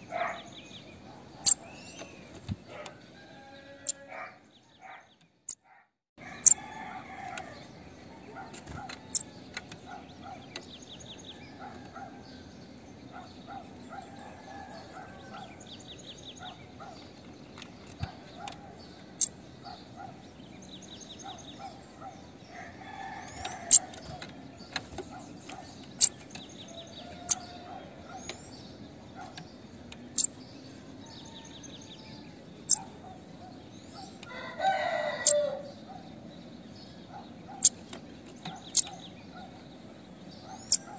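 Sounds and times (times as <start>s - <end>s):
fowl crowing: 2.8s - 4.4s, 6.2s - 7.6s, 22.5s - 23.9s, 26.8s - 28.2s, 34.3s - 35.7s.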